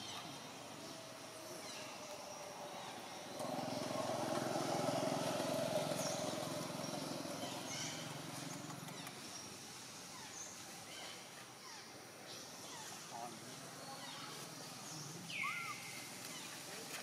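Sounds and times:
vehicle engine passing by: 2.6s - 9.2s
faint bird chirps: 5.9s - 16.7s.

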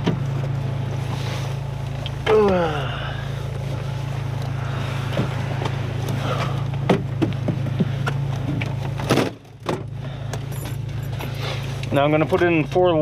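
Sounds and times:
car engine idling: 0.0s - 13.0s
clicks and knocks in car seat: 5.1s - 10.8s.

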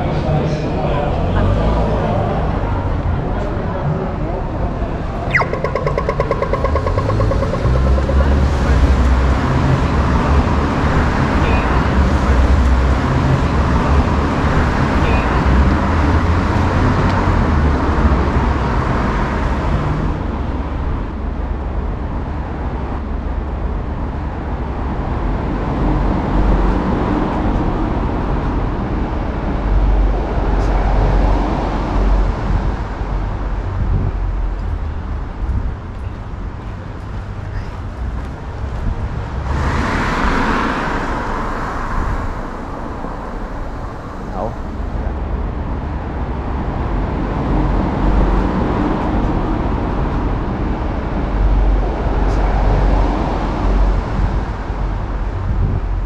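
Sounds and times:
city traffic noise: 0.0s - 56.0s
vehicle passing close by: 4.9s - 20.8s, 37.9s - 55.7s.

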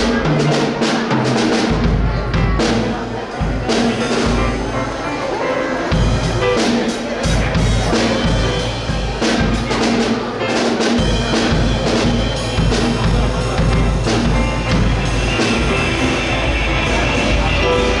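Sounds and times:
drum kit hits: 0.0s - 18.0s
live rock band playing: 0.0s - 18.0s
steady bass line: 11.0s - 18.0s.

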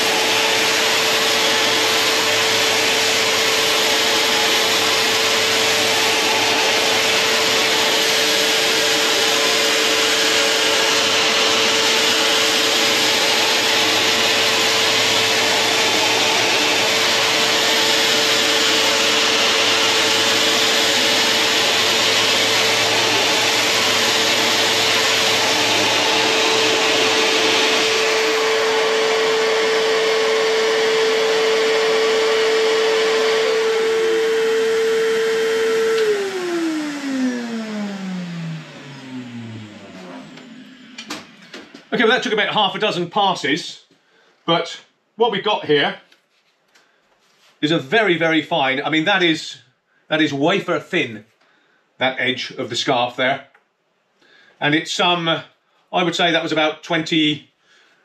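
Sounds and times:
power drill low hum: 0.0s - 42.4s
sanding disc cutting plywood: 0.0s - 42.8s
vacuum cleaners running: 0.0s - 42.9s.

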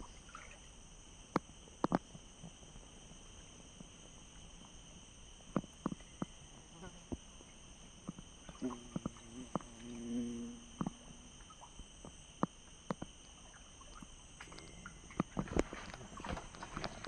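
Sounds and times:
insects droning: 0.0s - 17.0s
low hum: 0.0s - 17.0s
water splashes and knocks: 13.9s - 17.0s.

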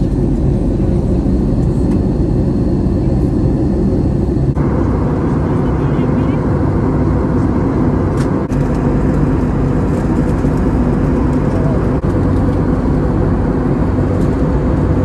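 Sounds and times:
jet airliner cabin drone: 0.0s - 15.0s.

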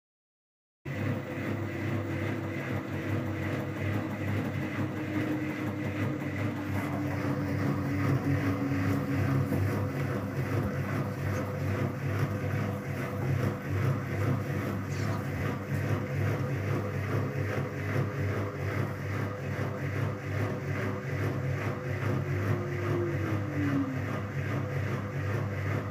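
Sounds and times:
faint motor whine: 0.9s - 25.9s
washing machine motor hum: 0.9s - 25.9s.

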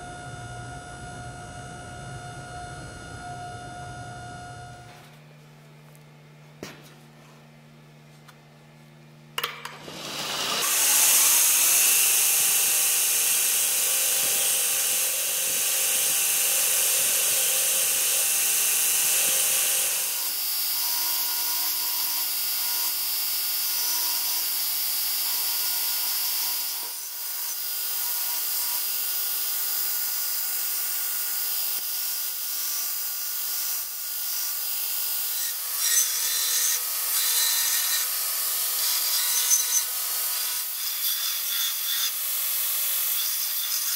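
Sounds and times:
grinder motor hum: 0.0s - 6.0s, 9.4s - 22.3s.

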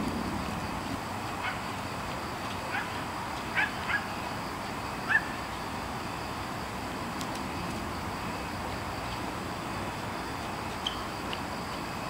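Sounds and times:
steady background hiss: 0.0s - 12.0s
dog barking: 2.7s - 3.0s, 3.6s - 4.1s, 5.1s - 5.3s.

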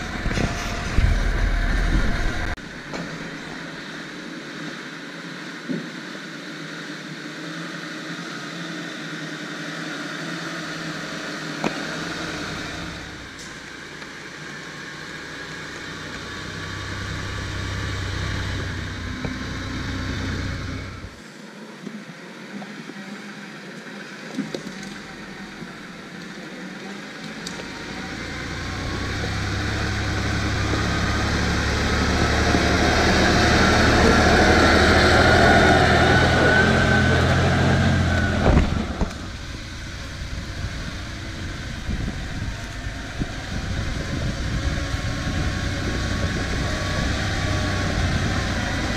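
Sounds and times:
diesel truck engine under load: 0.0s - 3.8s, 10.7s - 21.2s, 24.4s - 48.9s.

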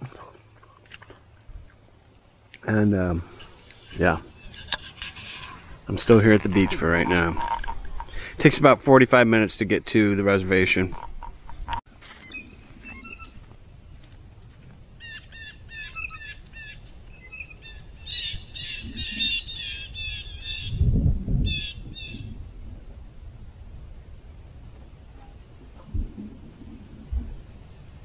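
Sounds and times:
bird chirping: 11.0s - 13.4s, 15.0s - 23.0s.

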